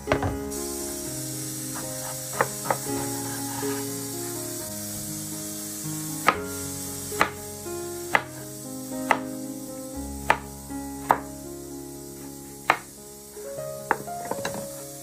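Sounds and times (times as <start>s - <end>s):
background music: 0.0s - 15.0s.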